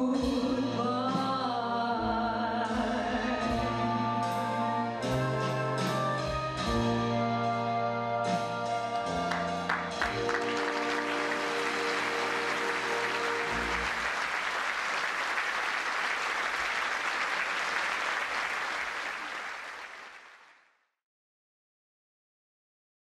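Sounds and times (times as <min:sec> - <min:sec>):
audience applauding: 0:09.2 - 0:20.7.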